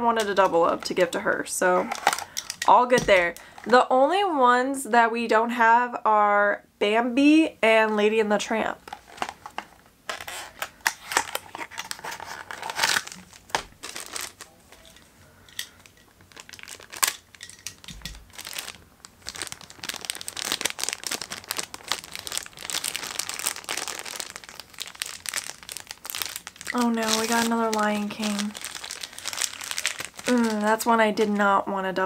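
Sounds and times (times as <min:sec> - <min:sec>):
foil pouch crinkling: 0:01.8 - 0:02.6, 0:08.8 - 0:15.0, 0:15.6 - 0:30.9
packaging rustling and clicking: 0:01.8 - 0:03.7, 0:08.8 - 0:30.8.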